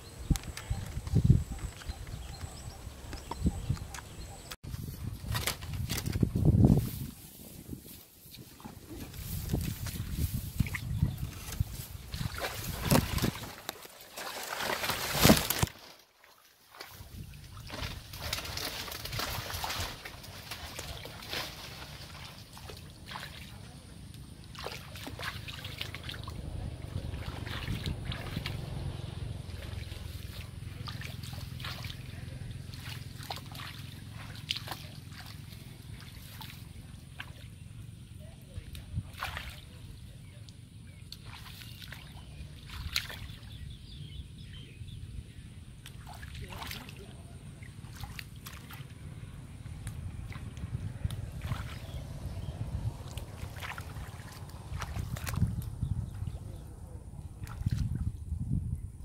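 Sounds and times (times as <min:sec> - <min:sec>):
muddy water splashing: 0:00.0 - 0:44.8, 0:45.7 - 0:58.4
plants snapping and rustling: 0:05.1 - 0:07.0, 0:08.3 - 0:15.9, 0:53.0 - 0:55.8
steady low rumble: 0:26.0 - 0:41.2, 0:47.1 - 0:59.0.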